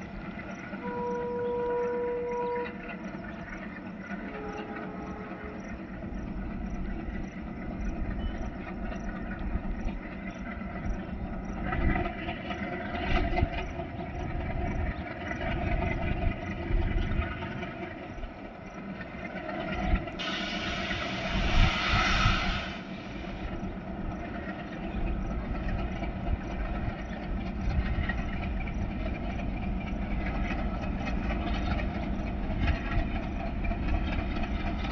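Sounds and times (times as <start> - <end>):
diesel locomotive engines chugging: 0.0 - 34.9
train horn: 0.7 - 3.0, 4.3 - 5.8.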